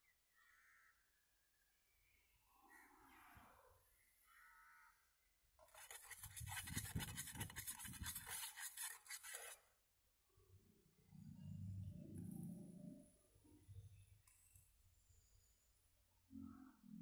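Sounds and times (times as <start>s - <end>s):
hand scraping wet concrete: 5.7s - 9.6s.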